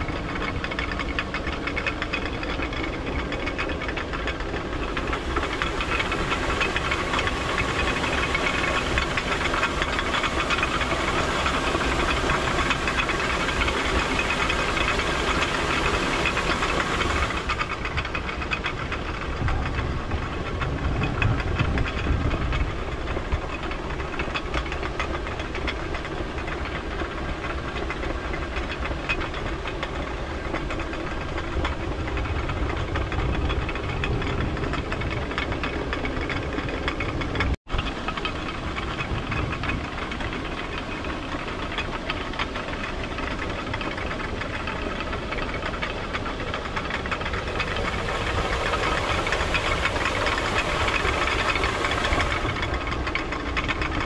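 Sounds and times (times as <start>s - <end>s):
water mill clattering: 0.0s - 54.0s
rushing water: 5.0s - 22.2s, 47.0s - 53.8s.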